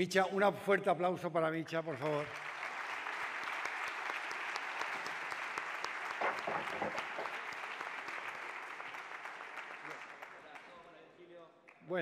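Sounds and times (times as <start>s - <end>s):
audience applauding: 2.0s - 11.0s.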